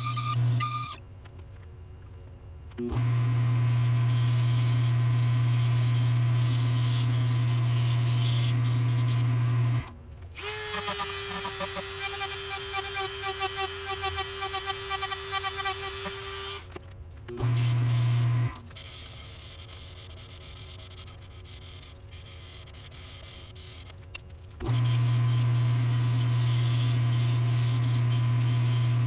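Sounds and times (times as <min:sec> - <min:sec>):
rotary tool whining: 0:00.0 - 0:01.0, 0:10.4 - 0:16.7.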